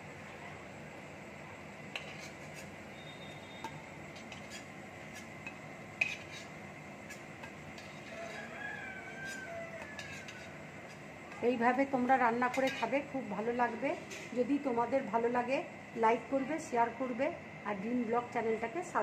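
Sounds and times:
oil sizzling: 1.8 - 16.4
metal spatula clinking on pan: 9.3 - 10.5, 12.5 - 13.0.

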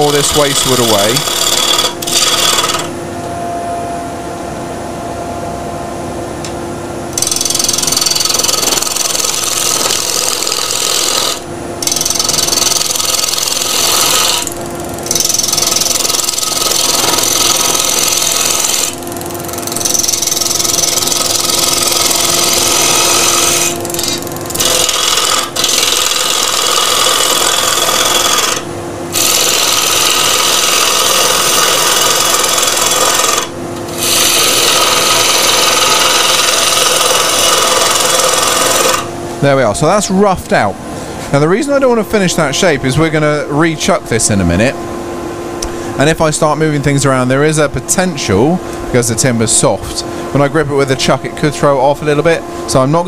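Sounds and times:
gouge rasping on spinning log: 0.0 - 2.9, 7.2 - 39.1
lathe humming: 0.0 - 3.4, 7.1 - 53.0
dust extractor humming: 0.0 - 53.0.

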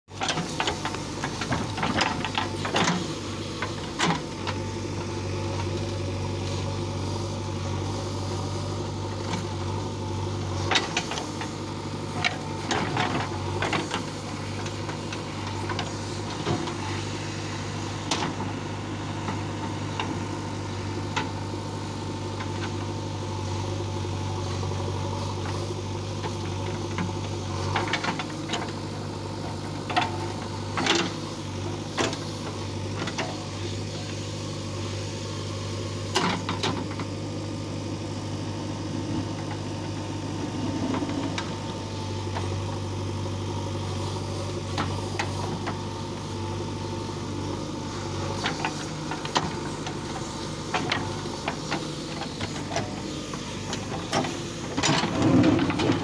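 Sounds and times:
diesel engine running: 0.1 - 56.0.

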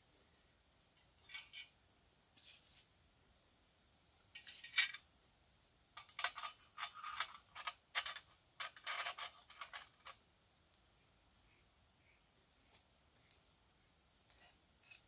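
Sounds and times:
metal lamp parts clinking and scraping: 1.2 - 1.7, 4.3 - 5.0, 6.0 - 10.2, 14.3 - 15.0.

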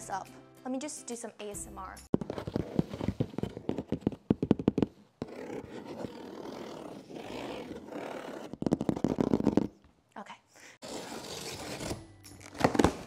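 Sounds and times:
fingernails scratching cardboard: 2.3 - 9.8.

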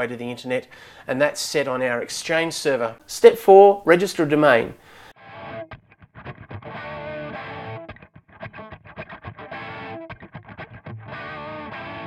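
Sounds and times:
distorted electric guitar music: 5.2 - 12.0.

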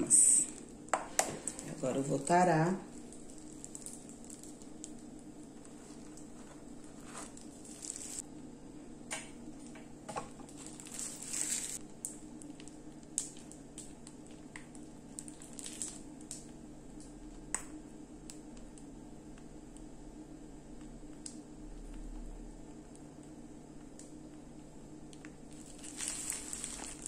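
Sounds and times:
faint steady hum: 0.0 - 27.0
plastic piping bag rustle and squish: 0.1 - 8.2, 10.4 - 17.5, 25.0 - 27.0.

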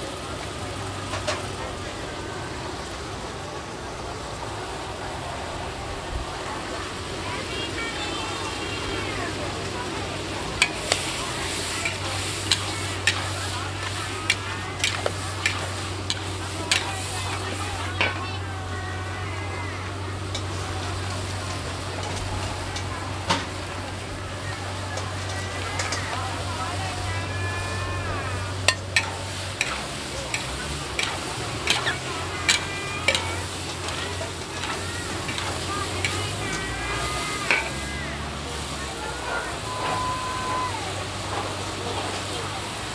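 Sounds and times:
metal utensils clinking on a wok: 0.4 - 1.6, 9.9 - 19.2, 19.8 - 40.2
food sizzling in a wok: 6.8 - 42.9.

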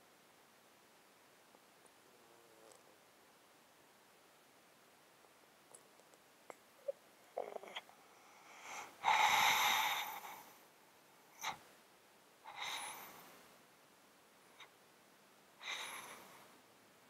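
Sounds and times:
cat snorting: 6.8 - 7.9, 8.5 - 10.5.

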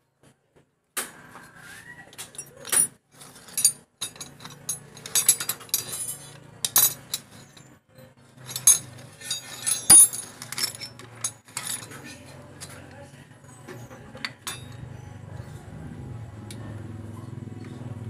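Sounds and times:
hand tools clinking on metal: 2.2 - 15.7.

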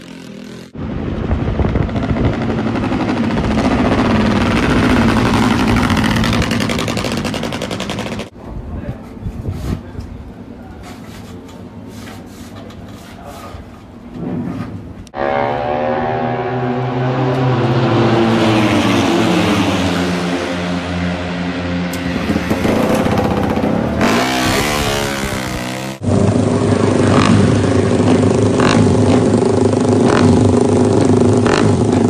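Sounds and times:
motorcycle engine revving: 0.0 - 8.3, 15.1 - 32.0
motorcycle engine running steadily: 0.0 - 8.3, 20.6 - 32.0.

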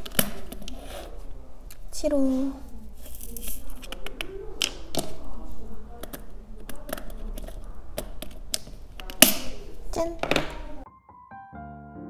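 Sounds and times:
pen tapping on plastic: 6.0 - 9.6.

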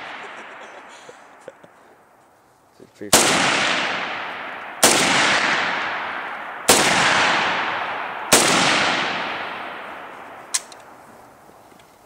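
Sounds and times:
rifle shots with echo: 0.0 - 1.4, 3.1 - 11.0.

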